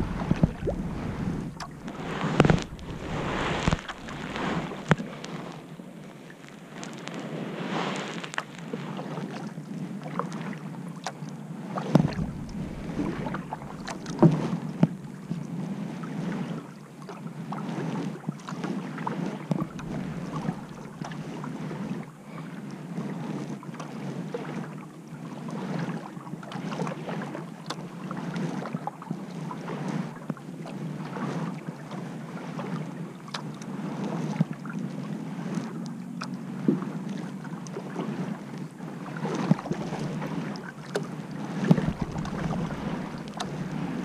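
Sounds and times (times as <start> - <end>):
kayak paddle splashing: 0.0 - 44.0
water drips: 41.7 - 44.0.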